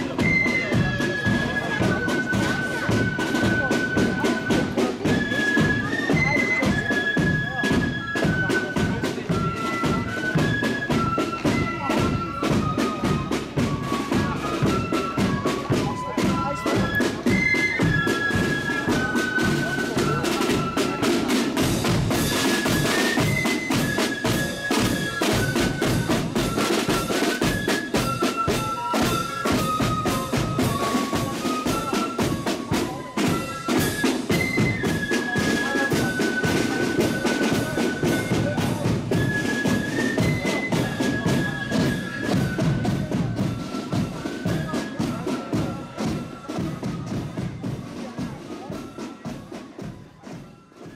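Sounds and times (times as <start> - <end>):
flutes playing melody: 0.0 - 50.9
rattling side drums: 12.4 - 44.6.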